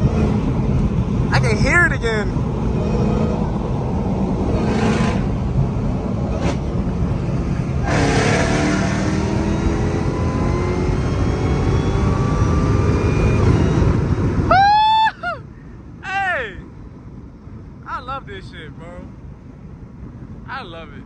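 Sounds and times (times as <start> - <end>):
car engine accelerating: 0.0 - 14.5.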